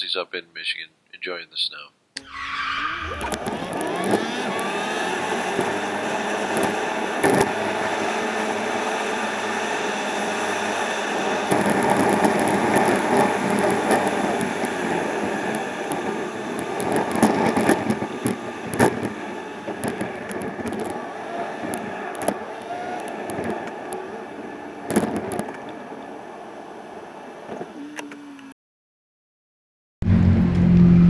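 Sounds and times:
car road and engine noise: 2.2 - 28.6, 30.0 - 31.0
sharp clicks and crackles: 3.0 - 5.8, 6.4 - 7.6, 11.5 - 24.1, 24.9 - 26.1.

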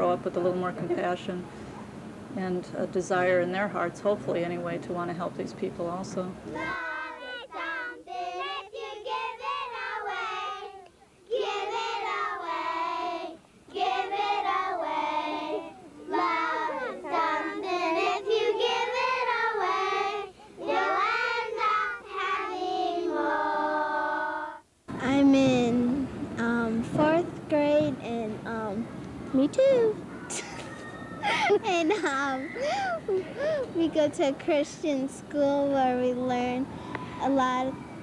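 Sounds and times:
young children singing: 6.6 - 24.6.

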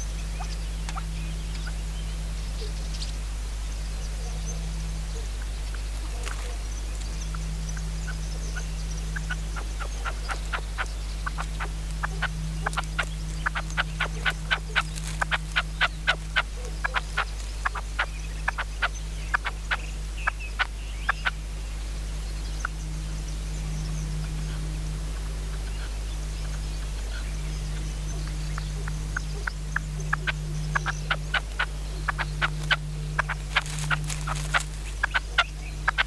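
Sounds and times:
partridge calling: 4.2 - 21.4, 25.5 - 36.0.

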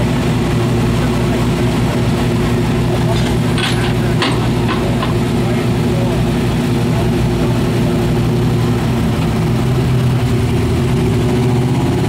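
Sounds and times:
truck engine rumbling: 0.0 - 12.0.

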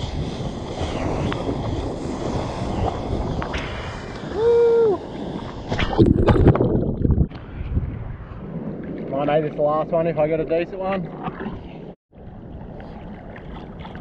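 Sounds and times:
wind rushing: 0.0 - 11.1
person hooting: 4.3 - 5.0.

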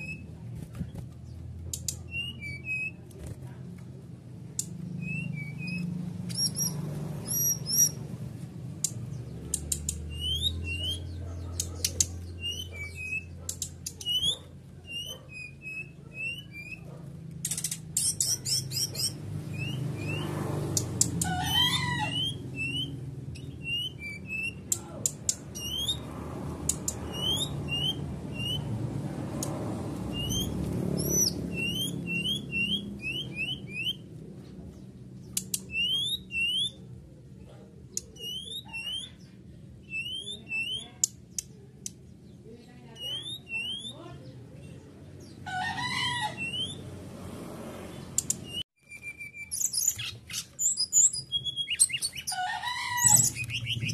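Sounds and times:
bird chirping: 0.0 - 3.1, 4.5 - 47.0, 47.7 - 53.9
sharp clicks: 8.8 - 10.1, 17.4 - 18.3, 26.6 - 27.1, 35.3 - 35.8, 48.2 - 48.5.

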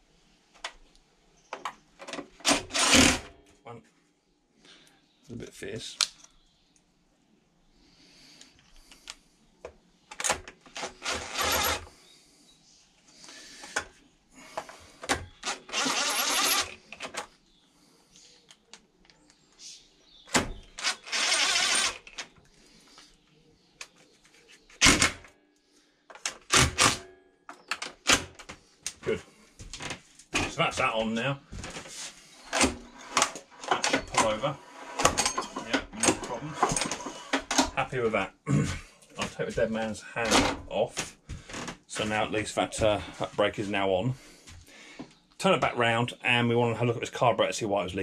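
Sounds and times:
drill-driver driving screws: 2.4 - 3.3, 10.2 - 11.9, 15.4 - 16.9, 20.6 - 22.3.

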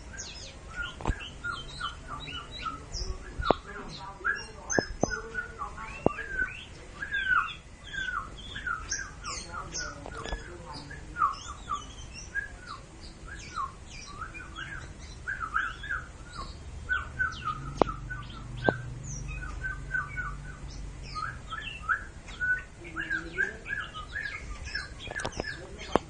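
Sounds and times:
bird chattering song: 0.0 - 26.0
sharp clicks: 17.7 - 19.6, 25.0 - 26.0.

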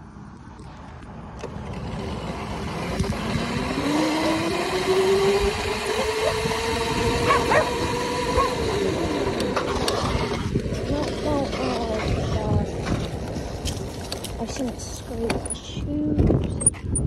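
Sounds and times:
electric motor whine: 1.3 - 14.3
wind on microphone: 2.6 - 17.0.

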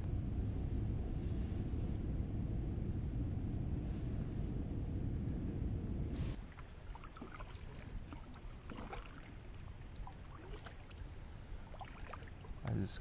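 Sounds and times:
steady high whine: 0.0 - 13.0
kayak paddle splashing: 6.4 - 12.8
water drips: 6.4 - 12.8.

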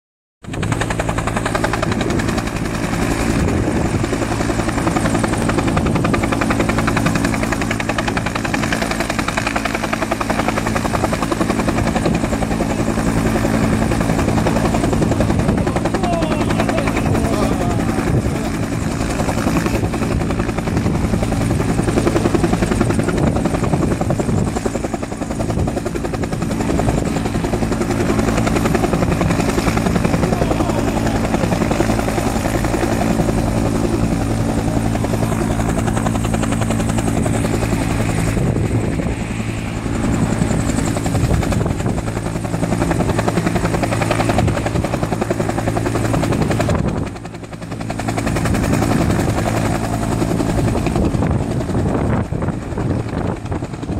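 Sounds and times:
helicopter rotor beating: 0.4 - 53.9
turbine hum: 10.9 - 53.9.

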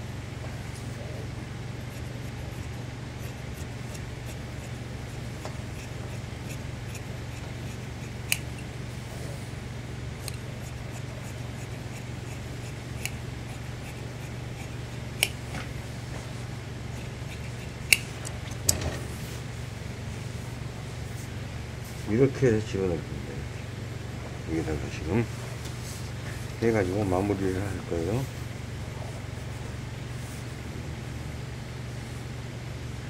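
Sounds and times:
steady low hum: 0.0 - 33.0
shears snipping fabric: 1.8 - 8.7, 10.2 - 18.4.

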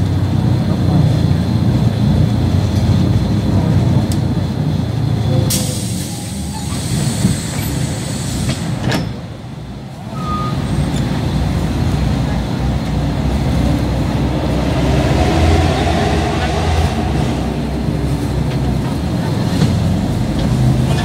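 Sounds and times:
bus engine rumbling: 0.0 - 21.0
air brakes hissing: 5.3 - 9.2.

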